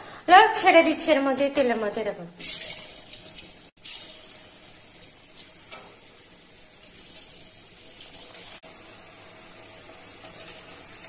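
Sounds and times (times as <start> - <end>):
potatoes sizzling in hot oil: 2.3 - 11.0.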